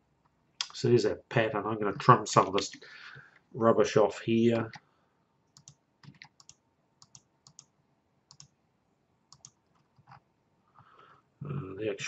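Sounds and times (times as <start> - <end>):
computer mouse clicks: 5.6 - 7.7, 8.3 - 8.5, 9.3 - 10.2.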